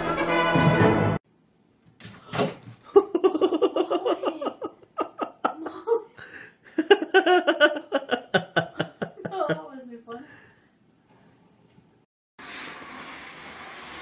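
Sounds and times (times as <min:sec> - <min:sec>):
person laughing: 0:02.8 - 0:09.8.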